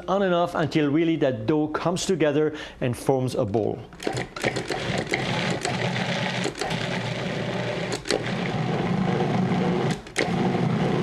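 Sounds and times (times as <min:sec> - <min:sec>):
food processor motor pulsing: 0:04.0 - 0:11.0.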